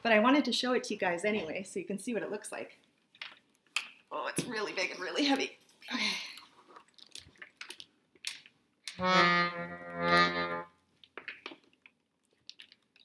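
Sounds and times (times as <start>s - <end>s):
accordion chord: 9.0s - 10.7s.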